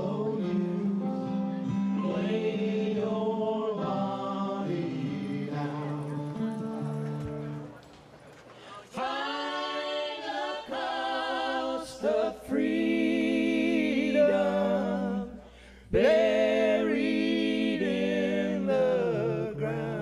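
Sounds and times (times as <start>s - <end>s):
voices singing in harmony: 0.0s - 20.0s.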